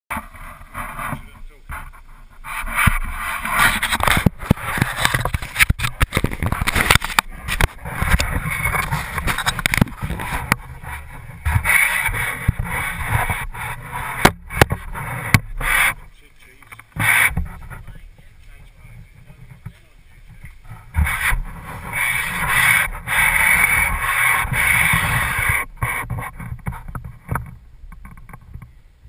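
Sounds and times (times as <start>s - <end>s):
camera knocks and clunks: 0.1s - 28.7s
camera handling rustling: 2.9s - 10.7s.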